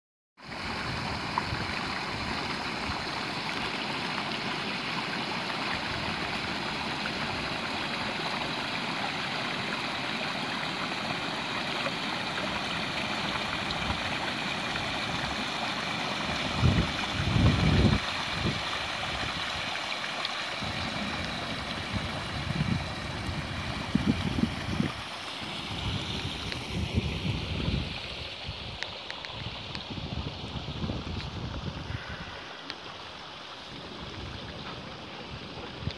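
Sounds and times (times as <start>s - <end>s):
river babbling over stones: 0.4s - 35.9s.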